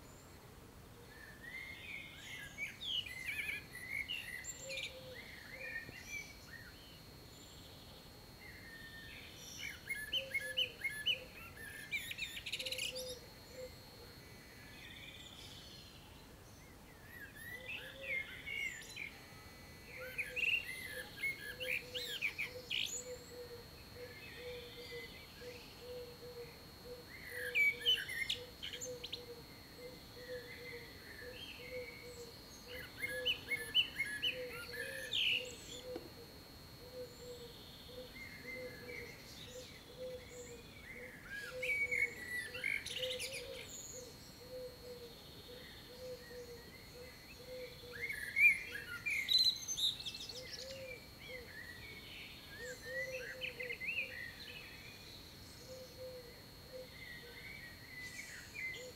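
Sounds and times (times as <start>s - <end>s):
faint steady high tone: 0.0s - 58.9s
songbirds singing: 1.0s - 58.9s.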